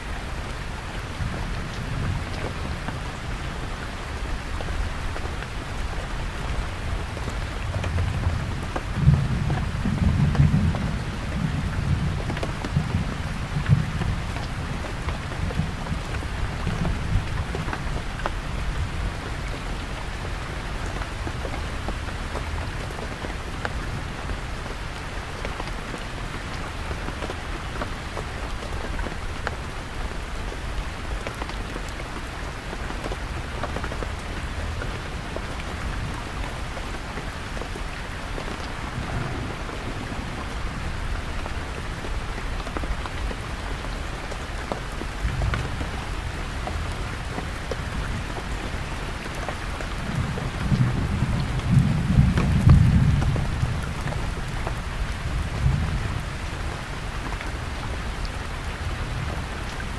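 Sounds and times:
heavy rain on canvas tent: 0:00.0 - 0:59.9
distant thunder rumble: 0:38.6 - 0:42.3.

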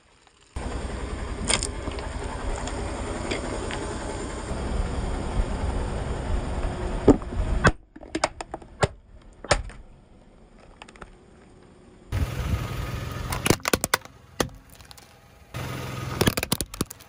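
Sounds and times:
tyre and engine rumble: 0:00.0 - 0:17.0
plastic cracking under tyre: 0:10.5 - 0:11.7, 0:13.3 - 0:15.2, 0:16.1 - 0:17.0.

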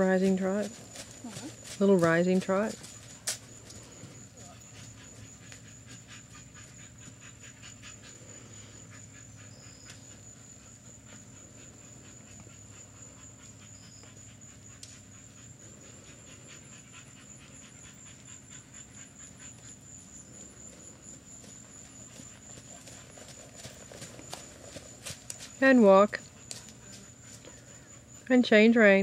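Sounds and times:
hoofbeats on sand: 0:00.0 - 0:05.6, 0:20.6 - 0:27.5.

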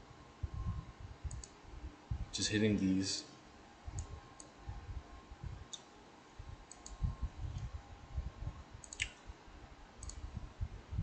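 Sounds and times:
computer mouse clicks: 0:01.3 - 0:01.6, 0:04.0 - 0:04.5, 0:06.7 - 0:07.0, 0:08.8 - 0:09.2, 0:10.0 - 0:10.2
soft low thumps: 0:02.1 - 0:02.3, 0:06.9 - 0:08.6.

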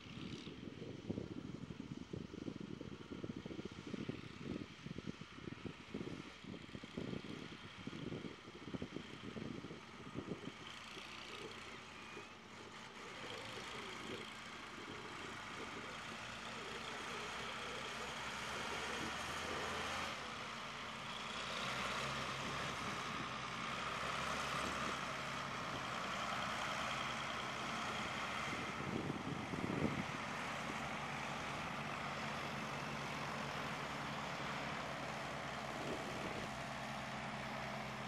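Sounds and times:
tractor diesel engine running: 0:00.0 - 0:38.0
low buffeting: 0:33.9 - 0:37.9.

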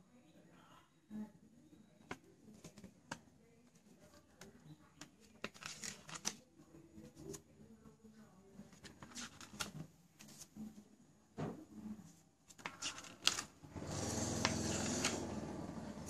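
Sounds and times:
paper pages rustling and flicking: 0:05.2 - 0:06.4, 0:08.7 - 0:10.6, 0:12.5 - 0:13.6, 0:14.2 - 0:15.3.

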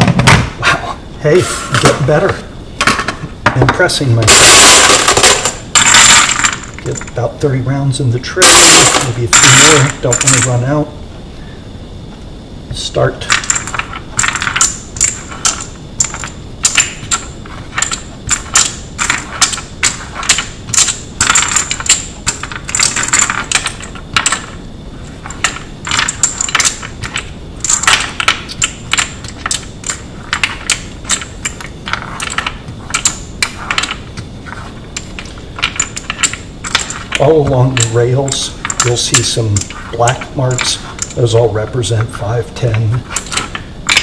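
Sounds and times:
metal cartridges clinking: 0:01.8 - 0:07.2, 0:08.4 - 0:10.6, 0:13.2 - 0:44.0.

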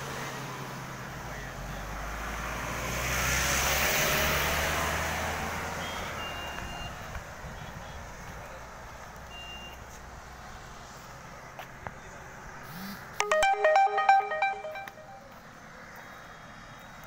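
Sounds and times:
idling lorry engines hum: 0:00.0 - 0:02.6, 0:05.2 - 0:13.2, 0:15.4 - 0:17.0
short high electronic beeps: 0:13.2 - 0:15.3.

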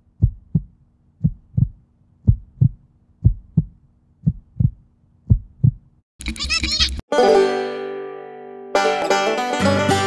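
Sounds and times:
heartbeat double thump: 0:00.2 - 0:05.9.

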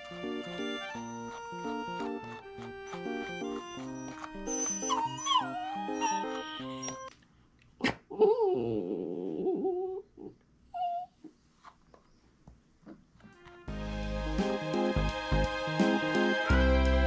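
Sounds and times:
dog whining: 0:01.0 - 0:07.1, 0:08.1 - 0:11.3.

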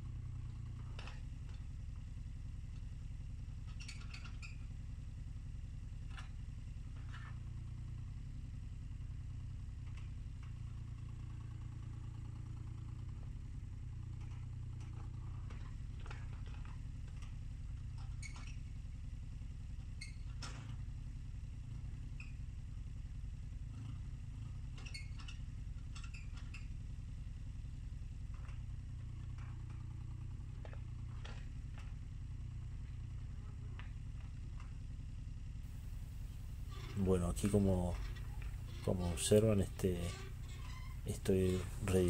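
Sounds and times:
excavator engine running: 0:35.7 - 0:42.0
excavator bucket clinking: 0:35.9 - 0:42.0.

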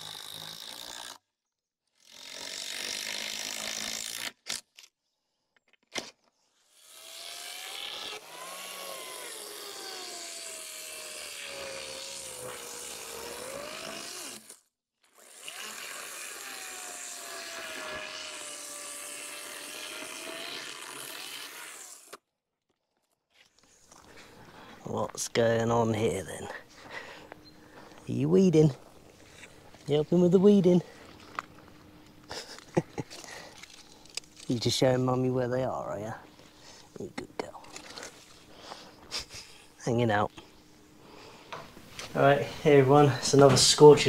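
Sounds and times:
chainsaw cutting wooden boards: 0:00.0 - 0:01.3, 0:01.9 - 0:04.8, 0:05.9 - 0:22.2, 0:26.8 - 0:39.8.

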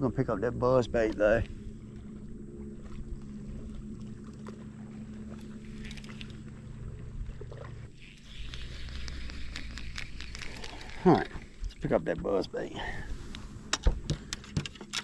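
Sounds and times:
electric motor humming: 0:01.5 - 0:11.6.

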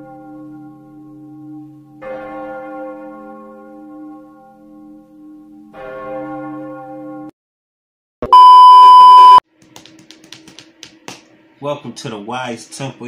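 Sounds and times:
test-pattern beep: 0:08.2 - 0:09.4.

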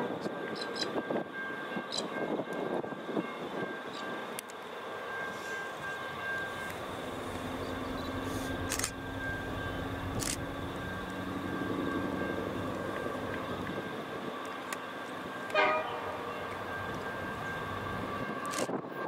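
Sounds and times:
distant diesel train approaching: 0:00.0 - 0:19.0
train horn toot: 0:15.4 - 0:16.5.

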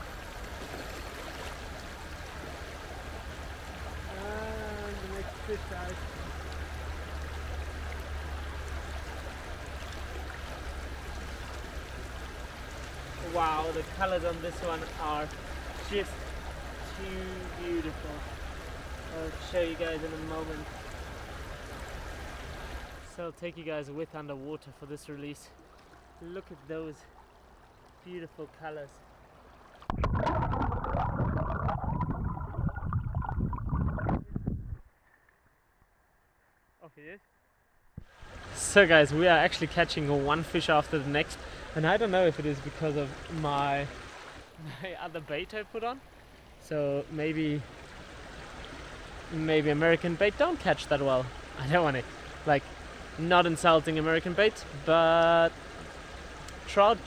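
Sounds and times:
stream water flowing: 0:00.0 - 0:34.2, 0:38.0 - 0:57.0
muffled underwater stream rush: 0:25.5 - 0:36.6
bubbling pops: 0:29.8 - 0:34.8.

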